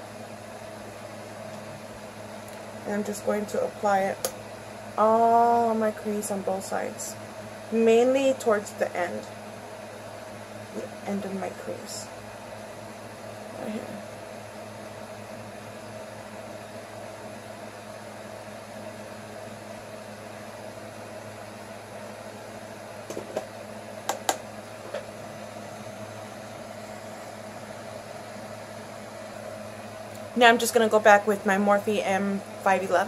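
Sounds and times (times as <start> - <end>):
low electrical hum: 0.0 - 33.0.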